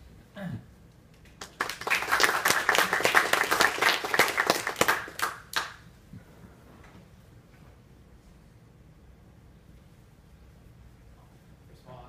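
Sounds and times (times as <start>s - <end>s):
audience applauding: 1.4s - 5.8s.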